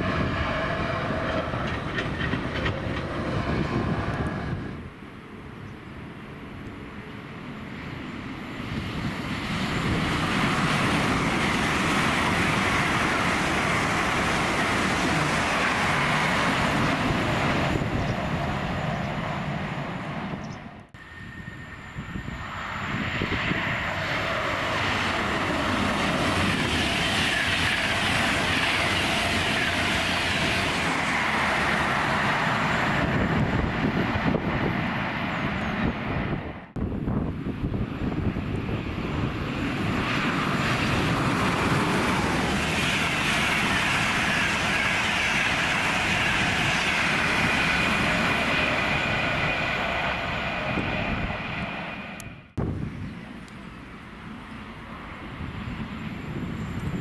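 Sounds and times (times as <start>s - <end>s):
high-speed train passing: 0.0s - 57.0s.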